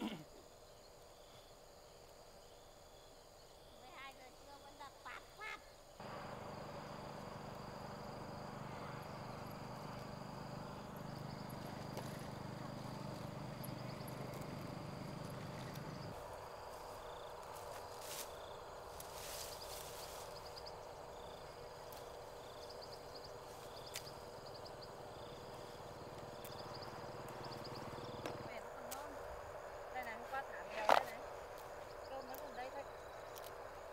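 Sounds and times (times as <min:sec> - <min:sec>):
insects chirping: 0:00.0 - 0:33.9
low hum: 0:06.0 - 0:16.2.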